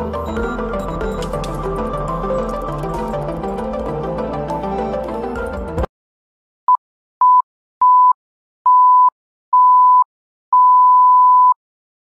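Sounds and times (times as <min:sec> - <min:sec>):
electronic beep tone: 0:00.0 - 0:02.7.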